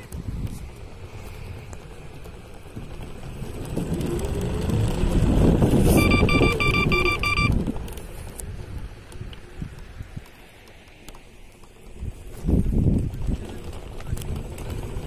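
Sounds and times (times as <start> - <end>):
rumble of wheels and wind: 0.0 - 15.0
scooter motor whining: 0.0 - 15.0
electronic beeps: 5.9 - 7.6.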